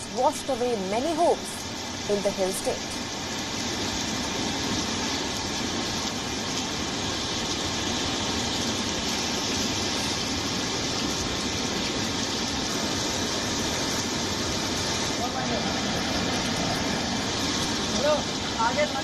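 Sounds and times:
river water rushing: 0.0 - 19.0.

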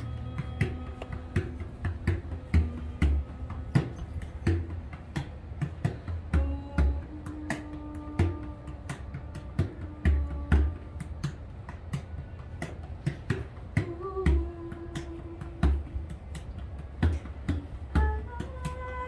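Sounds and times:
woman singing long notes: 0.0 - 4.4, 6.3 - 11.6, 13.7 - 16.3, 17.9 - 19.0
frame drum beaten with stick: 0.0 - 19.0.

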